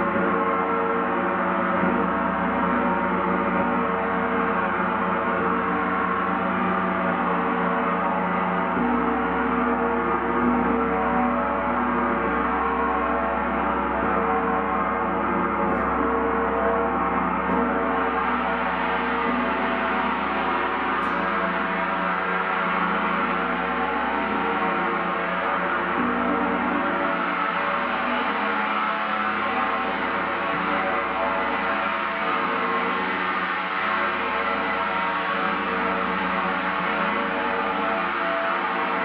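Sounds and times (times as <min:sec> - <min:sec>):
gong ringing: 0:08.7 - 0:39.0.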